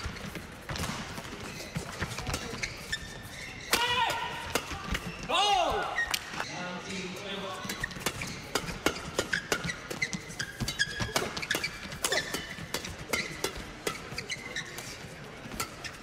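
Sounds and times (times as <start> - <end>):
shoes squeaking on court: 0.0 - 16.0
rackets hitting shuttlecock: 3.6 - 6.4, 7.6 - 16.0.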